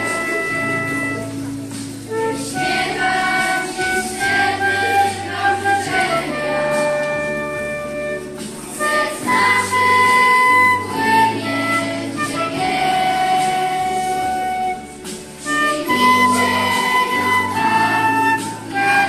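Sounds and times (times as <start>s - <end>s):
flute melody: 0.0s - 19.0s
low held accompaniment: 0.0s - 19.0s
children singing: 2.3s - 7.4s, 8.7s - 14.5s, 15.4s - 19.0s.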